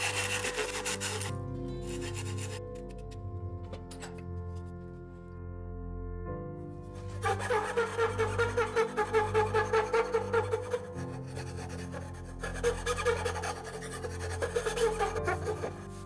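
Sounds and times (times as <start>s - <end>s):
metal file rasping on wood: 0.0s - 3.1s, 7.2s - 16.0s
background music: 0.0s - 16.0s.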